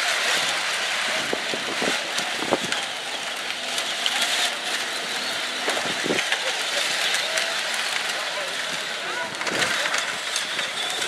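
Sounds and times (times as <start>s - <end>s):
toy cars whirring and grinding: 3.9s - 11.0s.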